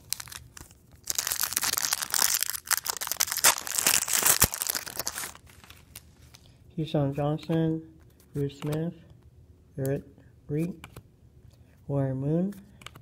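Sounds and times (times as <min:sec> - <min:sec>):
foil wrapper crinkling: 0:00.0 - 0:06.1.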